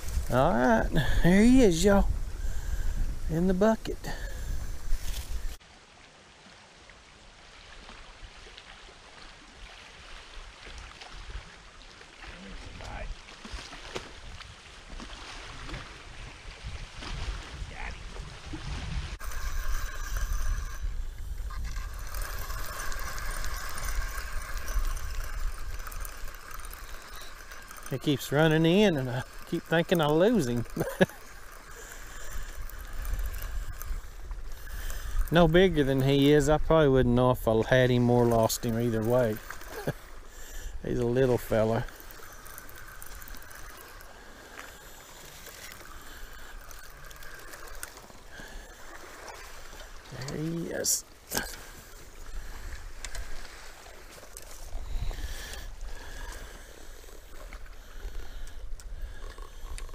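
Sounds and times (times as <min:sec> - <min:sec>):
spinning reel cranking: 0:00.0 - 0:05.6, 0:19.2 - 0:59.9
wind buffeting microphone: 0:00.0 - 0:05.6, 0:15.4 - 0:29.5, 0:52.2 - 0:56.4.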